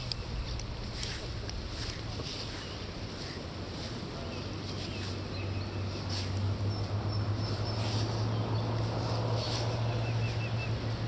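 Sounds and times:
constant low hum: 0.0 - 11.0
bird chirping: 4.2 - 11.0.

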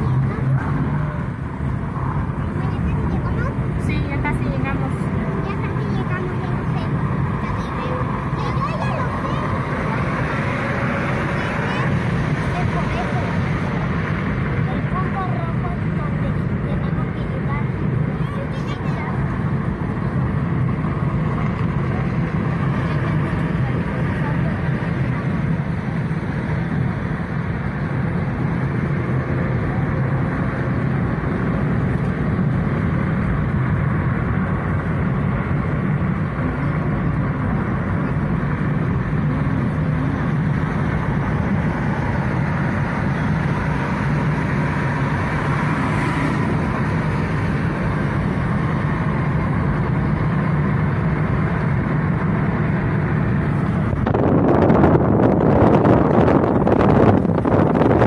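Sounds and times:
car road and engine rumble: 0.0 - 58.0
wind noise rush: 25.4 - 58.0.

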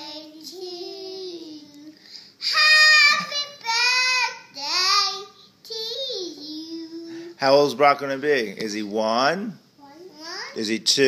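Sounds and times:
children singing wordlessly: 0.0 - 7.2.

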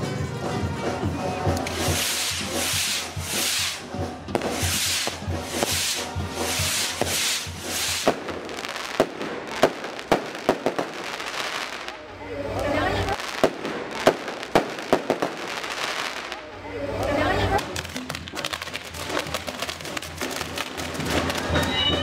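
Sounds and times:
spark fountains hissing: 1.6 - 11.9
firecracker bangs: 1.6 - 12.0, 13.1 - 16.4.

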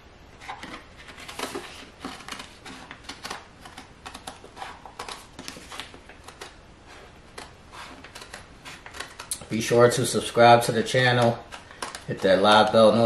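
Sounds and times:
scissors snipping plastic film: 7.3 - 9.5.

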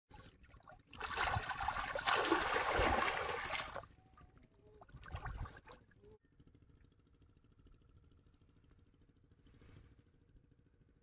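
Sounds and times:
fish thrashing in water: 0.8 - 3.9.

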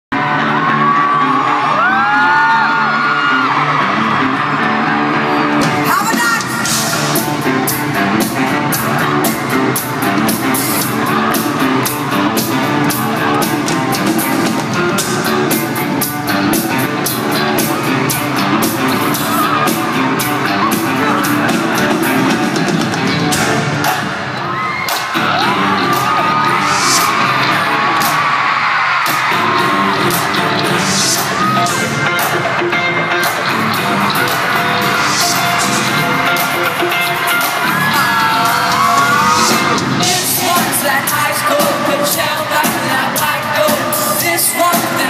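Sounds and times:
fans screaming: 0.1 - 45.0
live rock band playing: 0.1 - 45.0.

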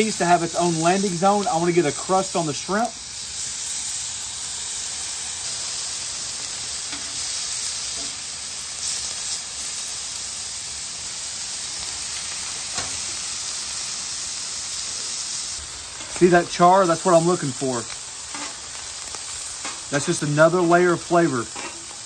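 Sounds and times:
meat sizzling on a griddle: 0.0 - 22.0
metal utensils clicking on griddle: 21.5 - 22.0.

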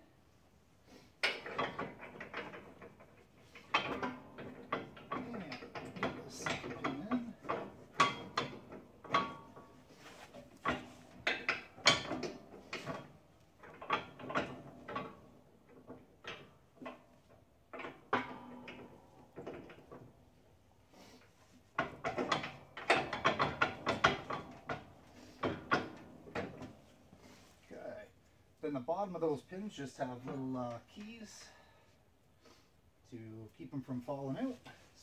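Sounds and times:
metal hardware clicking and clanking: 1.2 - 20.5, 21.7 - 27.0.

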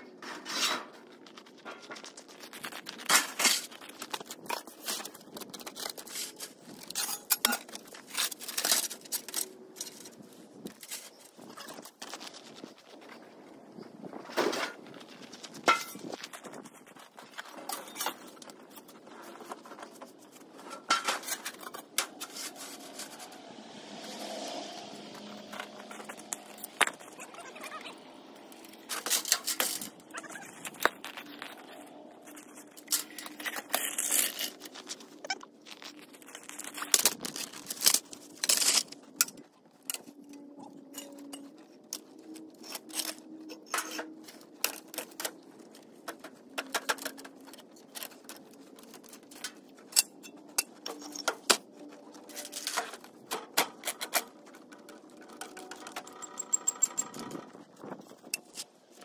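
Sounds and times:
metal gear clanking and scraping: 5.9 - 11.8, 17.4 - 23.4, 25.2 - 59.0.

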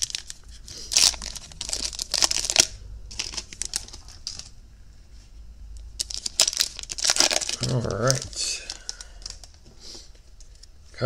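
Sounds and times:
cards rustling: 0.0 - 4.5, 6.0 - 10.6
foil wrapper crinkling: 0.0 - 4.5, 6.0 - 9.6.

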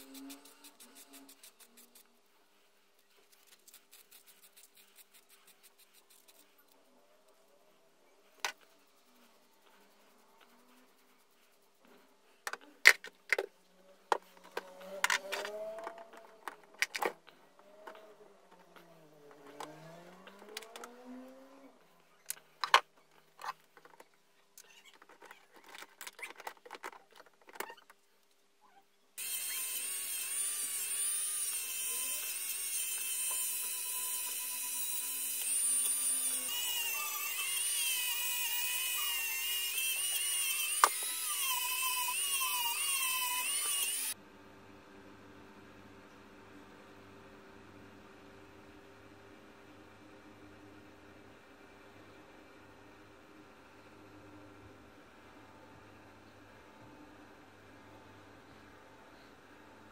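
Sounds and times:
rotary tool whining: 0.0 - 2.1, 14.1 - 24.0, 29.2 - 44.2.

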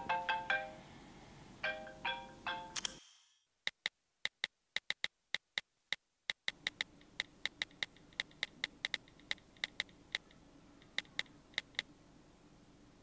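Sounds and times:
phone keyboard clicks: 3.7 - 5.6, 6.3 - 11.9
faint low hum: 6.6 - 13.0.

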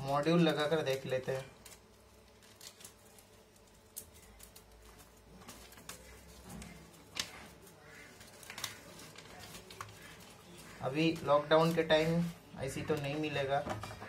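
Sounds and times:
paper rustling: 0.0 - 14.0.

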